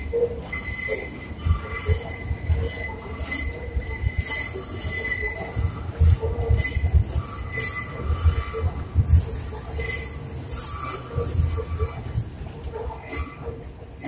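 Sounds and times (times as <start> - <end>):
thin steady wheel squeal: 0.0 - 13.6
train rumbling on elevated track: 0.0 - 14.0.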